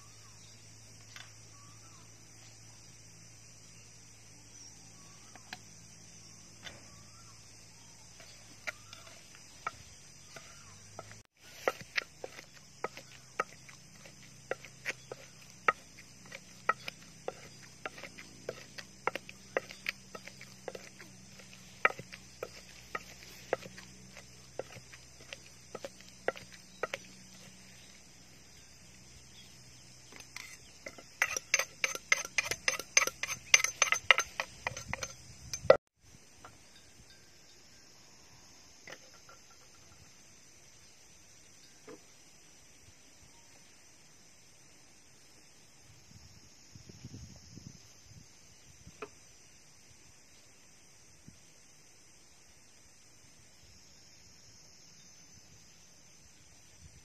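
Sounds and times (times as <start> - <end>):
wooden pestle pounding in mortar: 8.6 - 27.6, 30.4 - 35.8.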